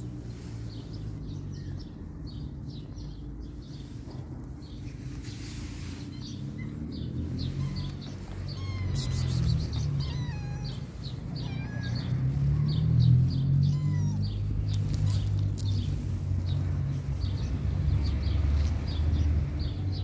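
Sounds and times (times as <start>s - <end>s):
small birds chirping: 0.0s - 20.0s
cat meowing: 7.4s - 14.8s.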